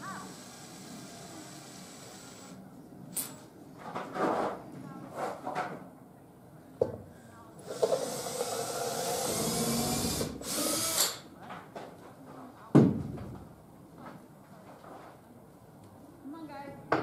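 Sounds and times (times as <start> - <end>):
cordless drill whining: 7.6 - 11.2.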